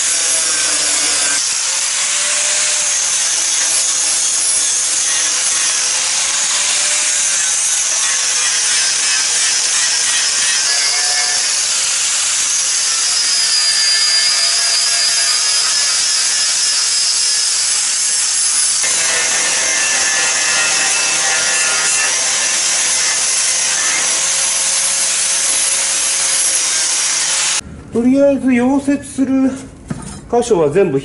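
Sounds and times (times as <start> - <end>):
angle grinder grinding metal: 0.0 - 27.6.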